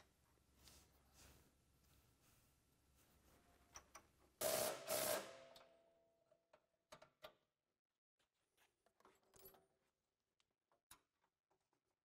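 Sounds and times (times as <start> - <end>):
light clicks and taps of tools: 3.6 - 4.2.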